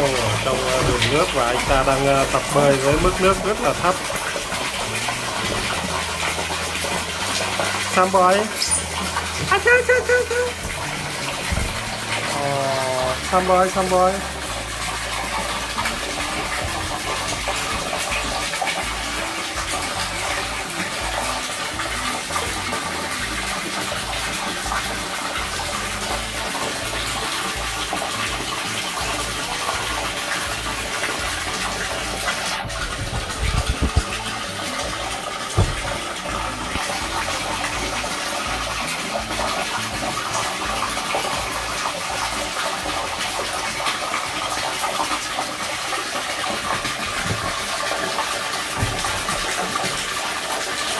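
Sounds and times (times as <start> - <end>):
water pouring into a pool: 0.0 - 50.9
short thumps: 32.5 - 34.2, 35.6 - 36.1.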